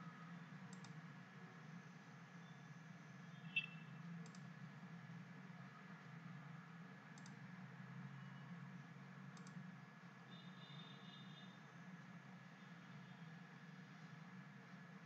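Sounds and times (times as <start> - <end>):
faint low hum: 0.0 - 15.0
computer mouse clicks: 0.6 - 1.0, 4.2 - 4.6, 7.1 - 7.5, 9.3 - 9.7.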